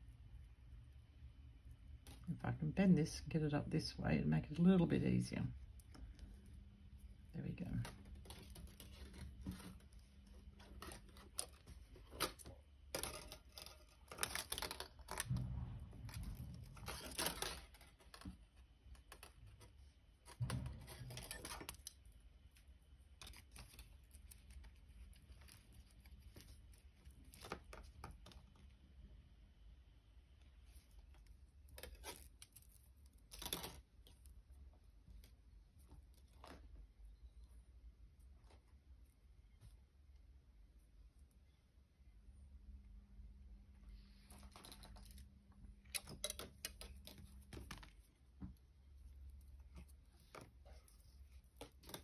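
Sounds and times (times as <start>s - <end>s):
copper wire clicking and rustling: 5.5s - 28.8s, 30.7s - 34.5s, 44.3s - 52.0s.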